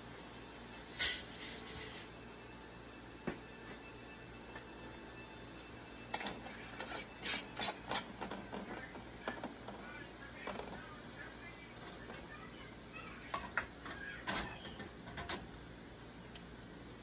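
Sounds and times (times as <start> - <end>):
metal lid scraping glass jar: 6.2 - 8.1.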